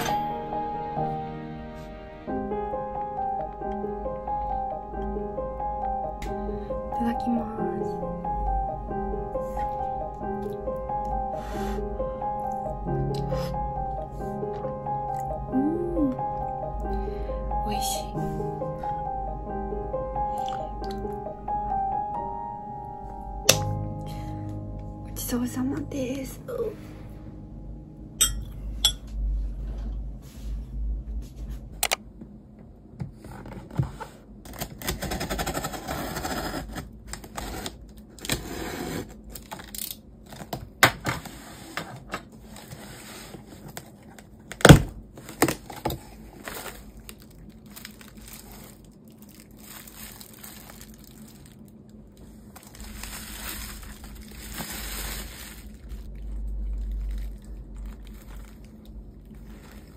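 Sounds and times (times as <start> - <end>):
cardboard flaps scraping: 33.1 - 39.2
bubble wrap crinkling: 42.4 - 59.9.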